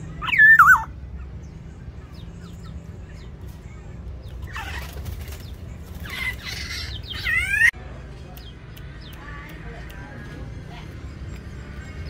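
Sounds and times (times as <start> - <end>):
bird wings flapping: 4.4 - 6.9.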